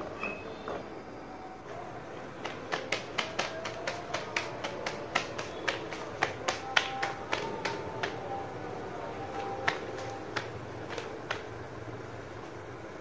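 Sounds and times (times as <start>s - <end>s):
dough slapped between palms: 2.4s - 8.3s, 9.3s - 11.5s.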